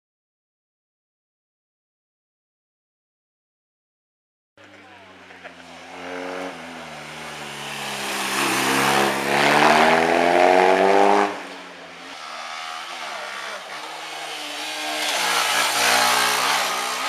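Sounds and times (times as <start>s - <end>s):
motorcycle engine accelerating: 4.6s - 17.0s.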